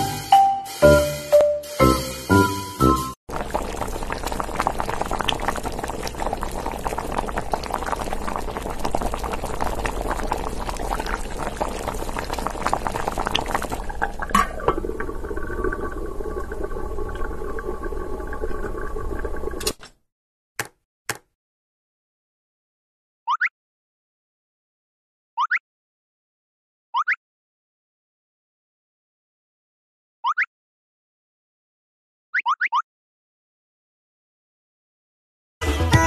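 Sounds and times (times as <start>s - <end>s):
liquid bubbling and crackling: 3.3s - 19.8s.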